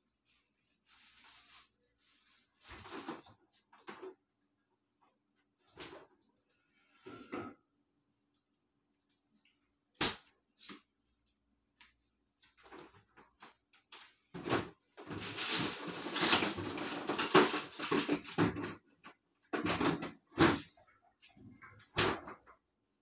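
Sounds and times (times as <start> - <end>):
rustling and clattering: 0.0 - 4.3, 12.3 - 22.8.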